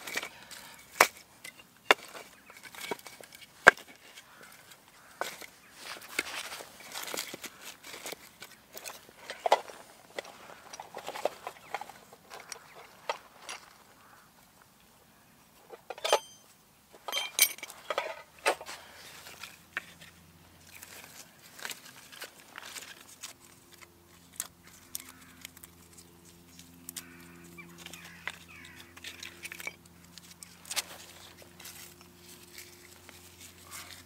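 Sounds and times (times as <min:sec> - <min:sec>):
wooden sticks clattering: 0:00.0 - 0:13.8, 0:15.7 - 0:25.6, 0:27.0 - 0:34.0
bark rustling: 0:24.2 - 0:29.4, 0:30.4 - 0:34.0.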